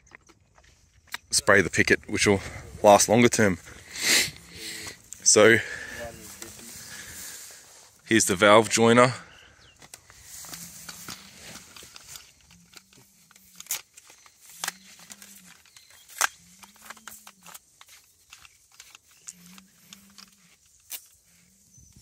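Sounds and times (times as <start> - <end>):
plastic pipe fittings clicking: 9.8 - 21.2.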